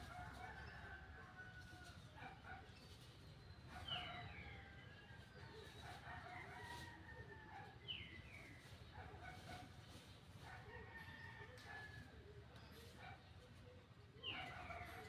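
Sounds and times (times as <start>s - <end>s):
faint rooster crowing: 0.0s - 2.6s, 3.8s - 8.7s, 10.4s - 13.3s, 14.2s - 15.0s.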